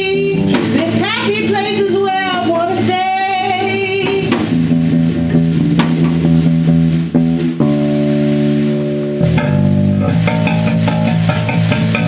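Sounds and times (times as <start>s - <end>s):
electric bass guitar low notes: 0.0s - 12.0s
drum hits: 0.4s - 1.2s, 4.0s - 12.0s.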